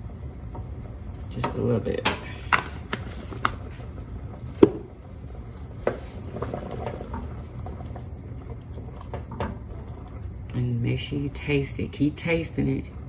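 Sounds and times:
low steady hum: 0.0s - 13.0s
wooden spoon stirring soup: 2.4s - 10.7s.

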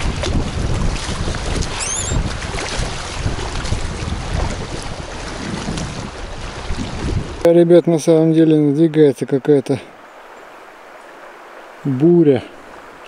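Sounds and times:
wind buffeting microphone: 0.0s - 7.5s
river current rushing and splashing: 0.0s - 13.0s
brief high chirp: 1.8s - 2.2s.

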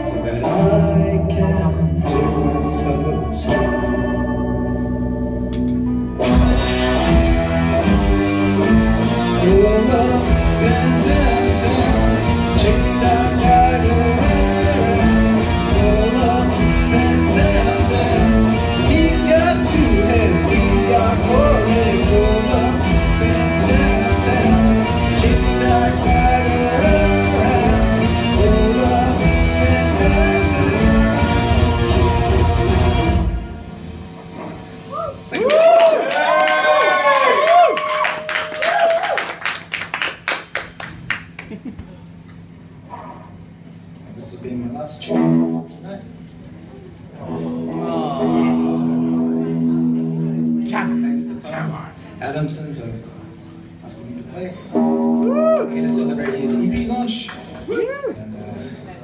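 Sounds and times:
heavy bass: 0.0s - 35.8s, 46.8s - 52.2s
electric guitar chords: 0.0s - 36.4s, 45.0s - 59.0s
steady drum beat: 6.3s - 33.7s.

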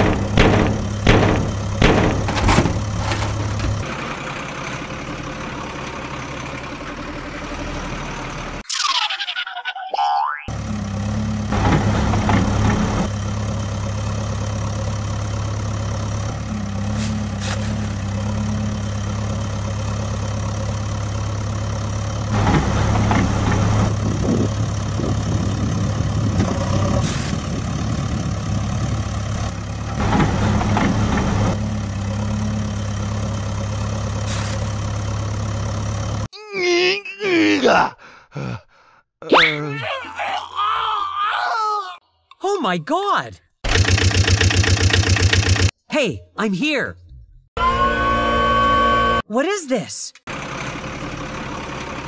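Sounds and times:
diesel excavator engine running: 0.0s - 9.3s, 10.5s - 36.3s, 43.6s - 45.8s, 50.3s - 52.0s
toy excavator digging sand: 16.9s - 18.1s, 34.3s - 34.8s.

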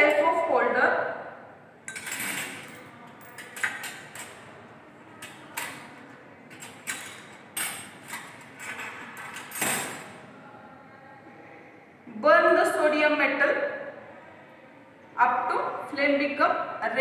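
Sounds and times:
metal forceps clicking and knocking: 1.9s - 4.5s, 5.2s - 10.1s.

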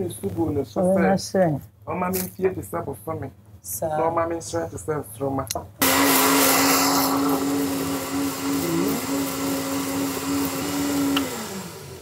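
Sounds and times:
blender motor whining: 5.8s - 12.0s.

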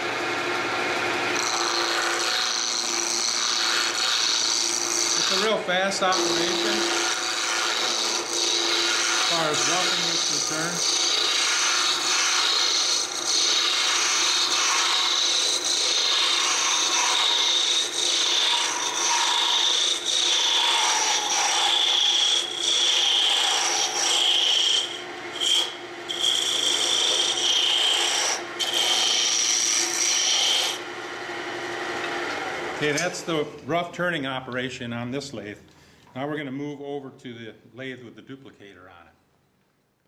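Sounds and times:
lathe humming: 0.0s - 33.5s
gouge rasping on spinning wood: 1.4s - 30.8s.

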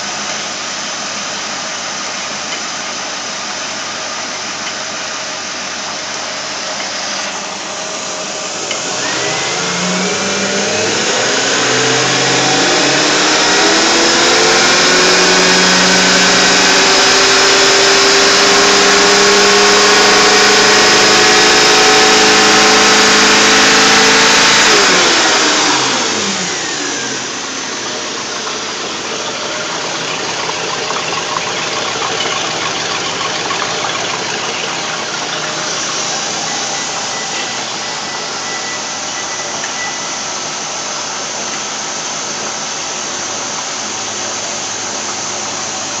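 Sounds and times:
boat engine revving and idling: 7.3s - 38.6s.

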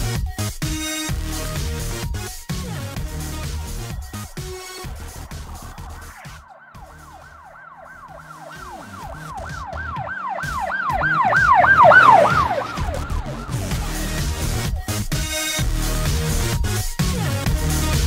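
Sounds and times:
siren in falling sweeps: 4.5s - 14.5s.

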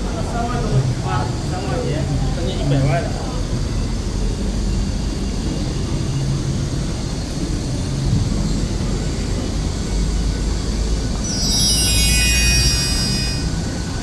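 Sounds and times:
city road traffic rumble: 0.0s - 14.0s
shrill high-pitched squeal: 11.2s - 14.0s.

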